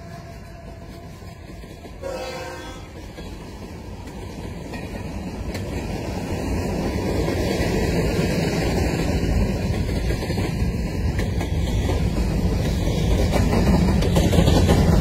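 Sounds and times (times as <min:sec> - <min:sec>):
steel train wheels rumbling on rails: 0:00.0 - 0:15.0.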